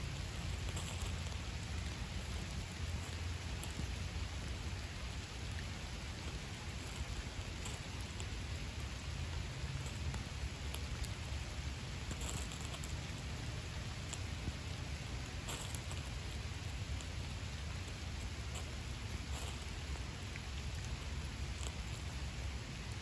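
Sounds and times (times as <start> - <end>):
steady rain falling: 0.0 - 23.0.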